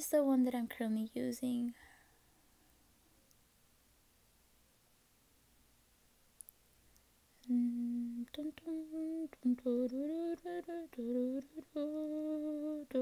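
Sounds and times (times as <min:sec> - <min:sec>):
woman humming: 0:07.4 - 0:13.0.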